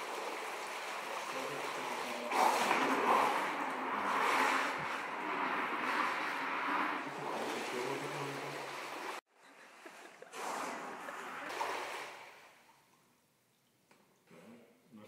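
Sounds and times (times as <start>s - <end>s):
water sloshing and splashing: 0.0s - 13.9s.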